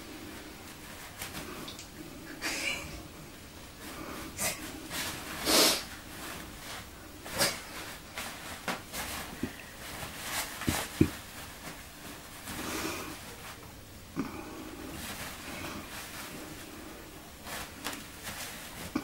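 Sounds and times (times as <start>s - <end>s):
toilet paper rustling: 4.9s - 13.6s.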